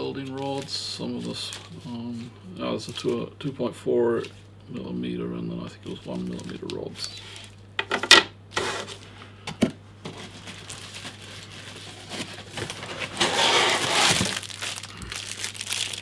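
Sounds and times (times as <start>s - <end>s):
cardboard and plastic bags rustling: 0.0s - 3.2s, 10.0s - 16.0s.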